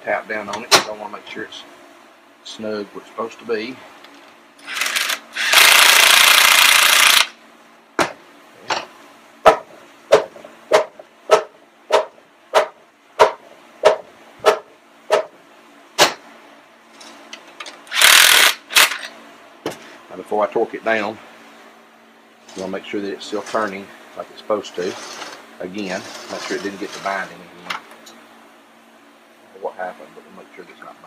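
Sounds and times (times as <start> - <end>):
cordless power tool running: 4.6 - 7.4, 17.9 - 19.1.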